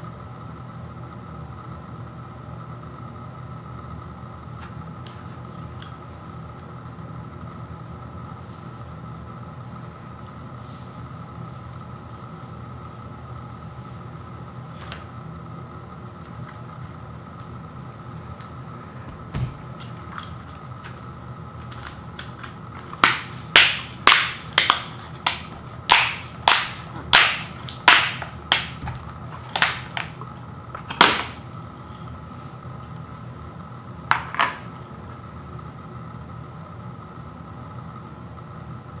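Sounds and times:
plastic lid snapping: 21.8 - 30.2.

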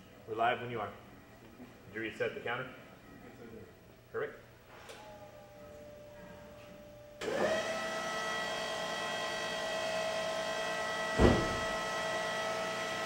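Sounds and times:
electric motor whine: 7.2 - 13.0
heavy thump: 11.2 - 11.8.

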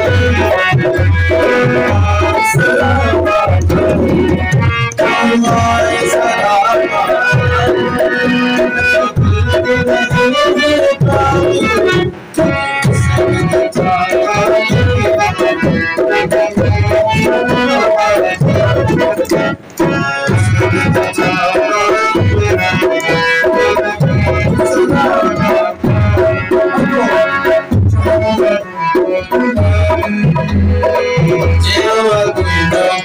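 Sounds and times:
hand drum bass strokes: 0.0 - 6.0
harmonium melody: 0.0 - 33.0.

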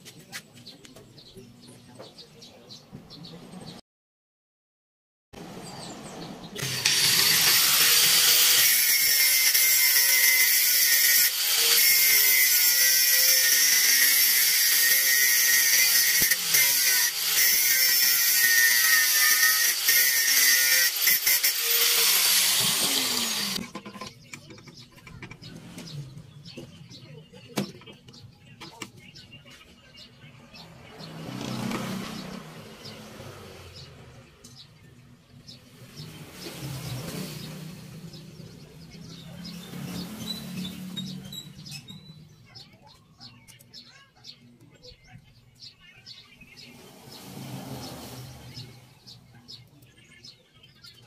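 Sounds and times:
angle grinder grinding metal: 6.6 - 23.7.

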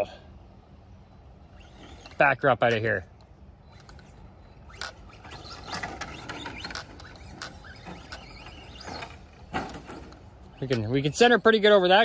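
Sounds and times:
toy car motor whine: 1.4 - 2.2, 3.7 - 9.5.

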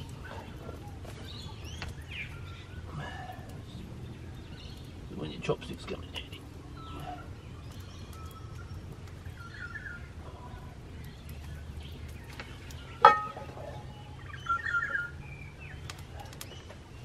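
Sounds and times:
birds chirping: 0.0 - 17.0
wood fire crackling: 0.0 - 17.0
metal frying pan clanking: 13.0 - 13.8.

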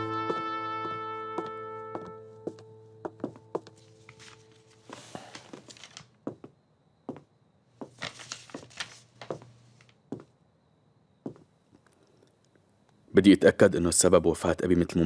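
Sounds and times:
paper rustling and crinkling: 3.8 - 6.2, 7.8 - 10.0.

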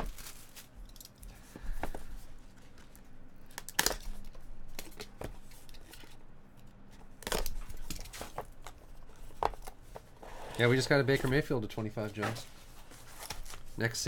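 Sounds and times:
cardboard box handling scrapes: 10.2 - 13.6.

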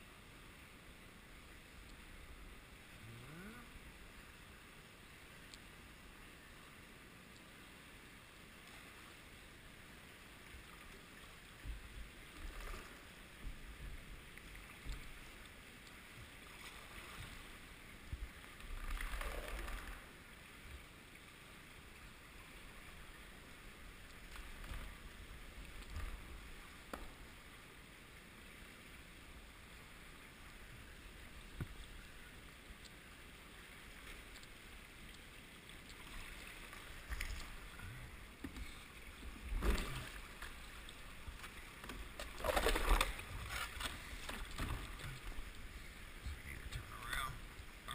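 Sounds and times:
paddle strokes splashing in water: 14.4 - 20.1, 38.4 - 45.9.

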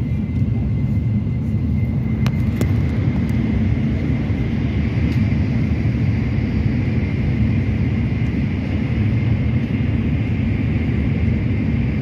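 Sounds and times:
faint high whine: 0.0 - 12.0
train rumble and rush: 0.0 - 12.0.

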